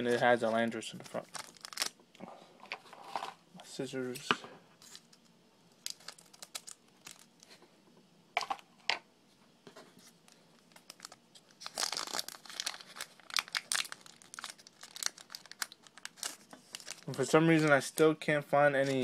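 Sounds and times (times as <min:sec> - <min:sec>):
foil wrapper crinkling and tearing: 0:01.0 - 0:02.0, 0:05.7 - 0:07.5, 0:10.6 - 0:17.8.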